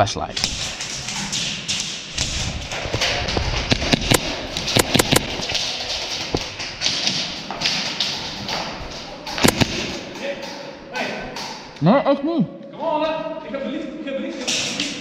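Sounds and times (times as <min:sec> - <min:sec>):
thuds: 0:00.4 - 0:10.6
gear and footstep noise: 0:00.4 - 0:11.8
airsoft gunfire snaps: 0:09.4 - 0:10.0.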